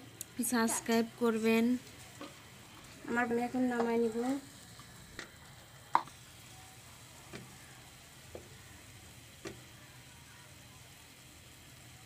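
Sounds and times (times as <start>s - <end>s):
bread frying faint sizzle: 0.0s - 12.0s
wooden spatula knocking pan: 3.7s - 4.0s, 7.3s - 7.6s, 9.4s - 9.7s.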